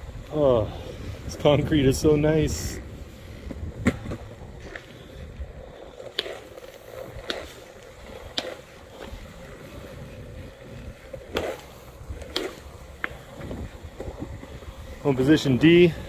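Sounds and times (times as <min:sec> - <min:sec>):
sharp clicks of wheels: 0:00.0 - 0:16.0
skateboard wheels rolling on concrete: 0:00.0 - 0:16.0.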